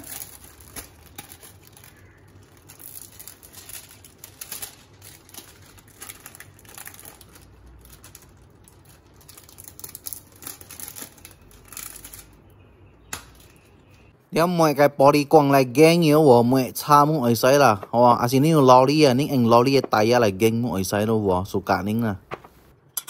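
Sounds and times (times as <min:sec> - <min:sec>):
plastic film crinkling: 0:00.0 - 0:14.1.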